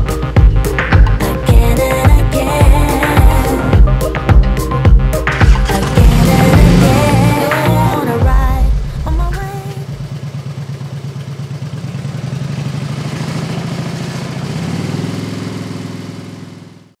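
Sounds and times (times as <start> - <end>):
motorcycle engine idling: 0.0 - 16.9.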